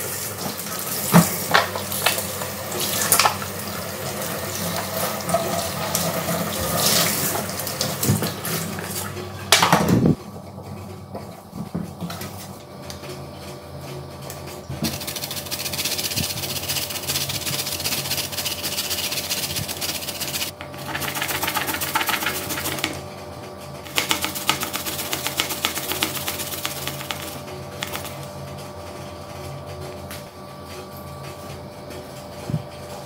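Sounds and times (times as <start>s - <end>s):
potato rasping on metal grater: 14.9s - 22.9s, 23.9s - 27.4s.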